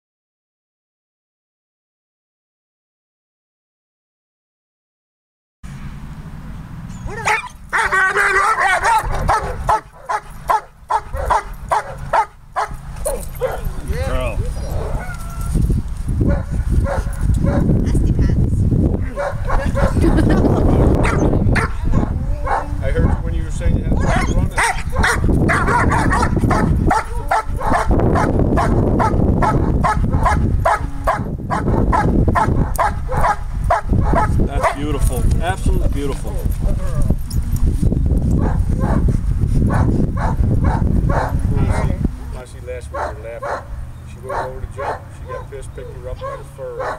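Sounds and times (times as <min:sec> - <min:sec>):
dog yelping: 0:07.0 - 0:15.6, 0:19.1 - 0:20.2, 0:21.0 - 0:23.2, 0:24.0 - 0:34.8, 0:36.6 - 0:37.2, 0:39.7 - 0:42.0, 0:43.0 - 0:43.7, 0:44.3 - 0:45.5, 0:46.2 - 0:46.9
dog barking: 0:07.1 - 0:13.8, 0:16.3 - 0:17.7, 0:19.1 - 0:20.2, 0:21.0 - 0:23.2, 0:24.0 - 0:34.9, 0:38.4 - 0:39.1, 0:39.7 - 0:42.0, 0:42.9 - 0:45.6, 0:46.2 - 0:46.9.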